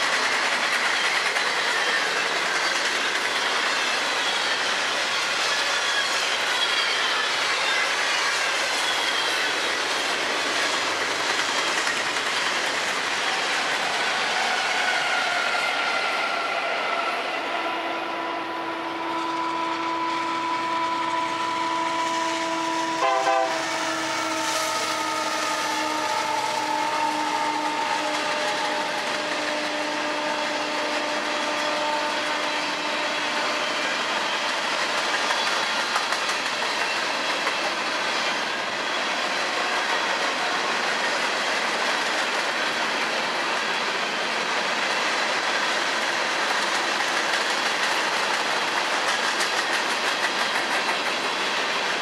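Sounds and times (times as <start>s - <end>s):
rail cars rumbling and clattering: 0.0s - 52.0s
locomotive air horn blast: 17.5s - 33.8s.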